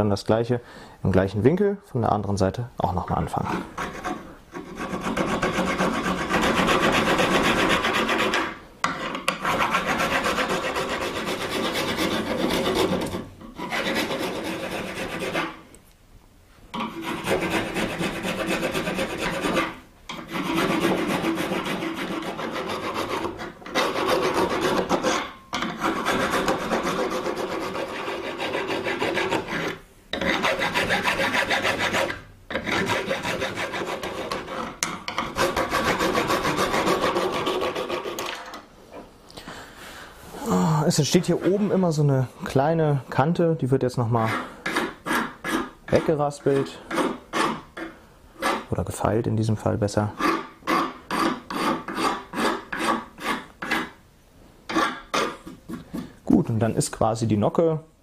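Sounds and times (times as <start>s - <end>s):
file rasping on bow tip: 3.4s - 15.6s, 16.8s - 38.3s, 44.2s - 48.7s, 50.1s - 54.0s, 54.7s - 56.1s.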